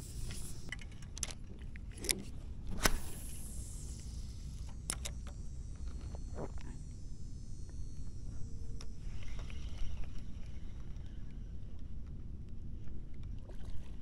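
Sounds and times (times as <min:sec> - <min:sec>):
fishing reel clicks and knocks: 0:04.0 - 0:06.0.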